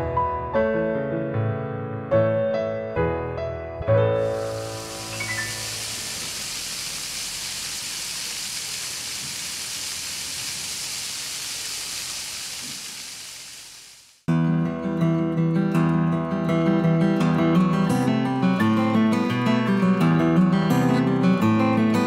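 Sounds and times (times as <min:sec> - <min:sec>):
fountain water splashing: 0:04.2 - 0:14.3.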